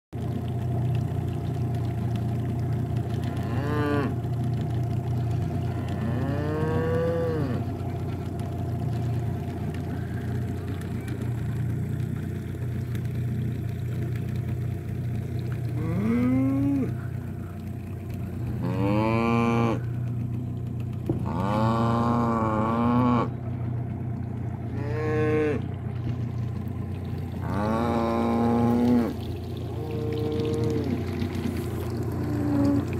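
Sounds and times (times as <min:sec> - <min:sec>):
steady low hum: 0:00.2 - 0:32.9
cows mooing: 0:03.2 - 0:04.2, 0:05.6 - 0:07.8, 0:15.7 - 0:17.2, 0:18.5 - 0:19.9, 0:21.2 - 0:23.4, 0:24.7 - 0:25.7, 0:27.3 - 0:32.9.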